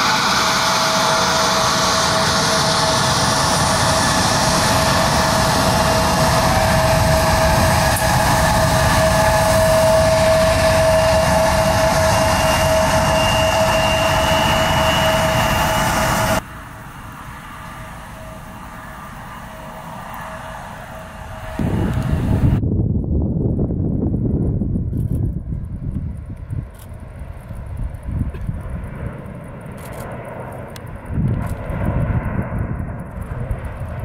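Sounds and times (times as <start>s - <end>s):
jet engines whining: 0.0s - 22.6s.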